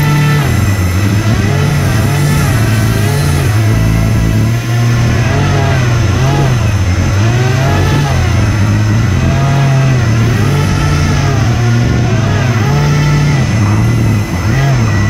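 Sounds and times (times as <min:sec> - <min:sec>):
fans running hard: 0:00.0 - 0:15.0
steady low hum: 0:00.0 - 0:15.0.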